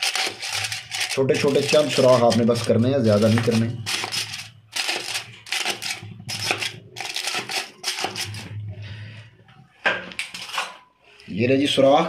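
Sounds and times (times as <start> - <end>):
aluminium foil crinkling: 0.0 - 8.6.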